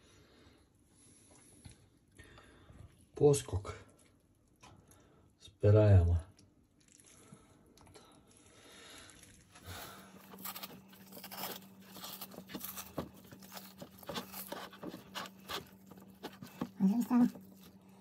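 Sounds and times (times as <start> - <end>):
faint steady hum: 0.0 - 18.0
wet fish tearing: 9.1 - 18.0.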